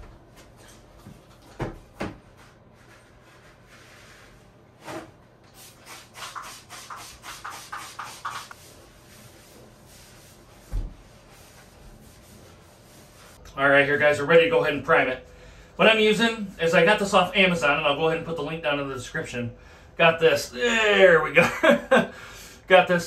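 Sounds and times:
paper towel scrubbing bathtub: 0:02.3 - 0:15.2, 0:15.8 - 0:19.4.

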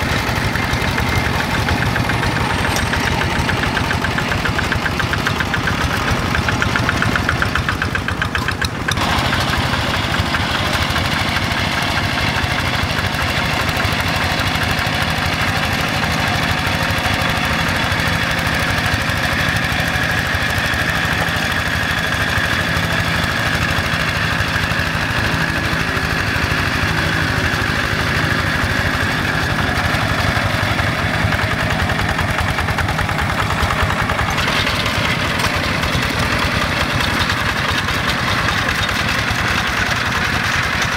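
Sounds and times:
diesel engine running under load: 0:00.0 - 0:40.9.

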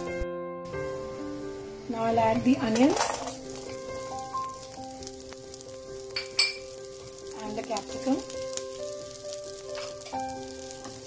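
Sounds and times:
vegetables sizzling in hot oil: 0:00.0 - 0:11.0
sharp clink: 0:06.2 - 0:06.6.

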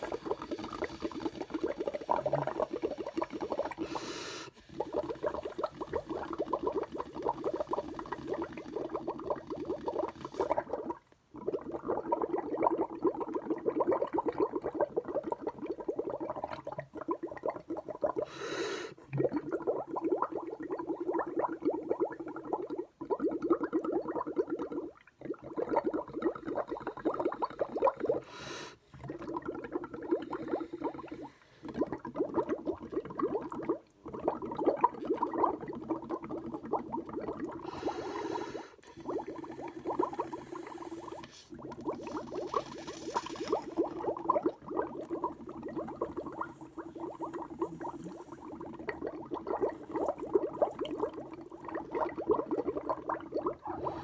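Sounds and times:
bubbling through a straw in milk: 0:00.0 - 0:18.3, 0:18.9 - 0:28.3, 0:28.9 - 0:54.0
short hissing sounds: 0:40.3 - 0:43.8.

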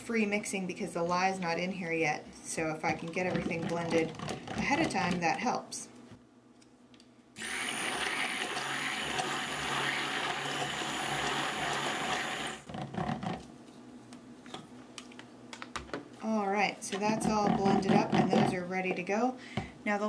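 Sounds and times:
stick blender running in liquid: 0:07.4 - 0:13.3.

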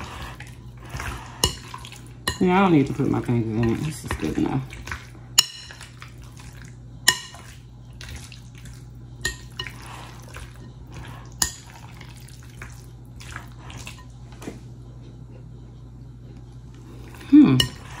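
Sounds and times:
spoon stirring wet marinade: 0:00.0 - 0:14.3.

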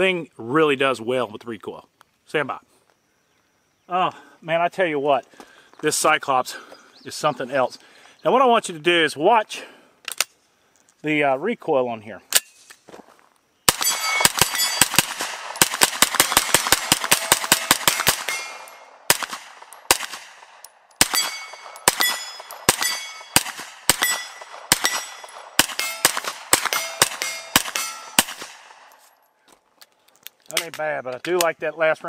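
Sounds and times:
gunshots: 0:13.7 - 0:28.9
steel targets ringing: 0:13.8 - 0:15.0, 0:17.2 - 0:18.9, 0:21.0 - 0:23.4, 0:24.0 - 0:28.3.

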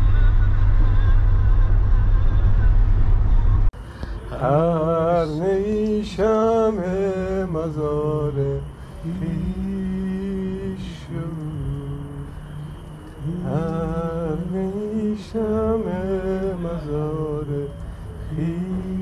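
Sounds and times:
man singing slowly: 0:04.3 - 0:19.0.

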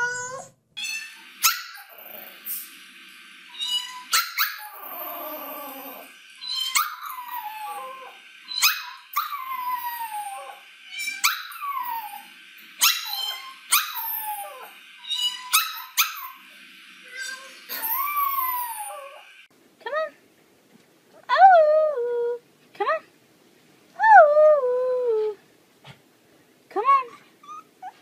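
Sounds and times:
puppy yelping howls: 0:03.6 - 0:16.4, 0:17.2 - 0:19.2.

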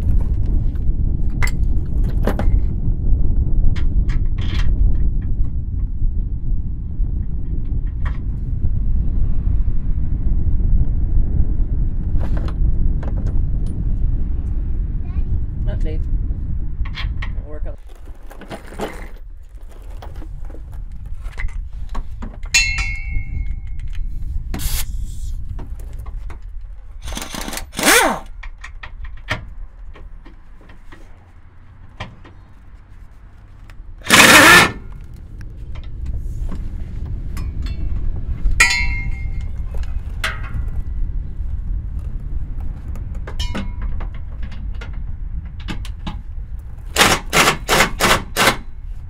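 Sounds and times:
steady low rumble: 0:00.0 - 0:49.0
sharp metallic clinks: 0:22.5 - 0:23.8, 0:38.6 - 0:39.5
power tool running: 0:27.0 - 0:28.3, 0:34.0 - 0:34.9.

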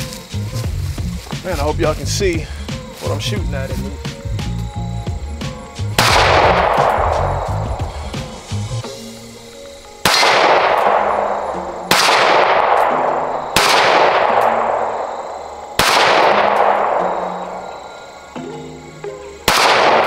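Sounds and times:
pistol shots with echo: 0:06.0 - 0:07.2, 0:10.0 - 0:17.4, 0:19.4 - 0:20.0.

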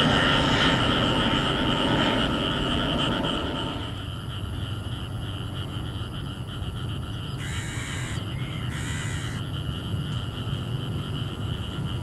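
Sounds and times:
low rumble: 0:00.0 - 0:06.2
insects trilling: 0:00.0 - 0:12.0.

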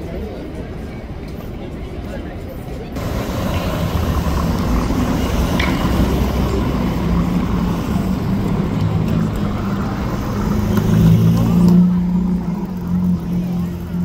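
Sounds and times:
city street traffic: 0:00.0 - 0:14.0
vehicle engine humming: 0:03.0 - 0:14.0.

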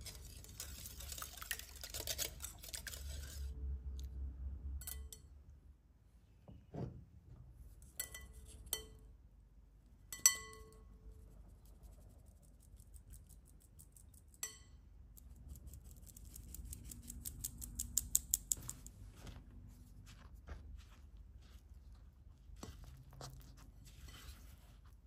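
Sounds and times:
glass bowl clinking: 0:10.1 - 0:10.8.

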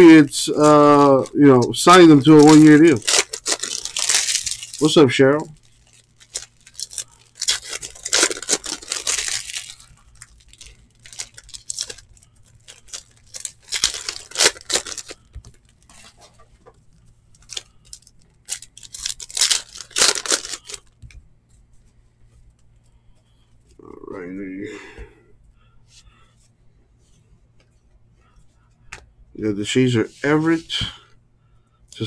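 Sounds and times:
foil wrappers tearing and crinkling: 0:00.0 - 0:16.1, 0:17.3 - 0:21.0
cards clicking and rustling: 0:00.5 - 0:05.0, 0:06.2 - 0:12.0, 0:12.7 - 0:16.7, 0:17.4 - 0:21.1.

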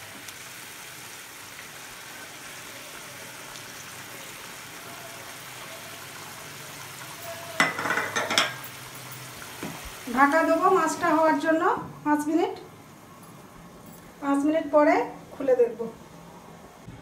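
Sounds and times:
gravy boiling in a frying pan: 0:00.0 - 0:14.2.

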